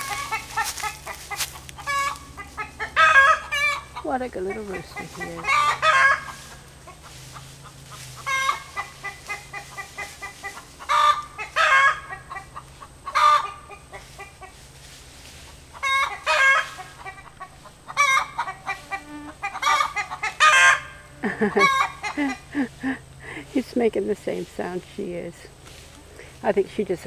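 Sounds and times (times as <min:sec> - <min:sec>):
hen calling: 0:00.0 - 0:14.7, 0:15.5 - 0:23.4
rooster calling: 0:00.0 - 0:14.7, 0:15.7 - 0:22.6.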